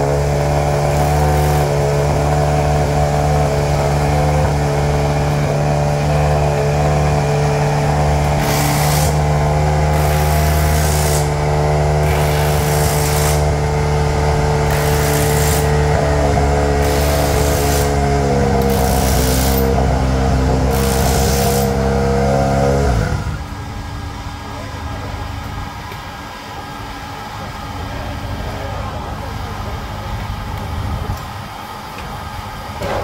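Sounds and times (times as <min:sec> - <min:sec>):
engine running steadily: 0:00.0 - 0:33.0
hiss: 0:10.0 - 0:11.3, 0:12.0 - 0:13.5, 0:20.8 - 0:21.8.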